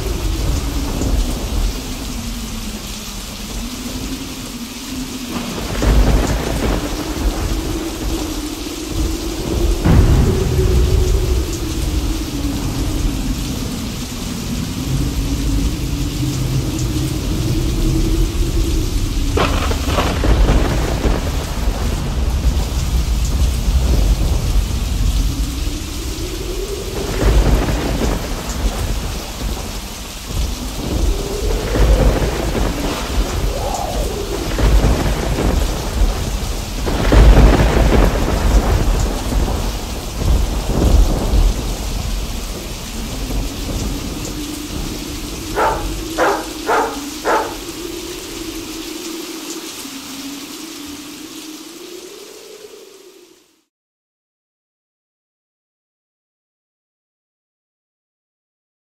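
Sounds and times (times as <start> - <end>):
thunder rumbling: 0.0 - 53.1
steady rain: 0.0 - 53.7
sharp thunder crack: 5.3 - 8.3, 9.4 - 14.0, 19.2 - 25.2, 26.9 - 47.9.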